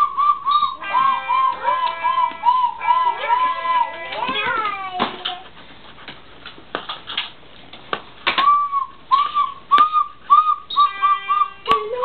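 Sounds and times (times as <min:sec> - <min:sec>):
toy whistle toots: 0:00.0 - 0:04.0, 0:08.4 - 0:12.0.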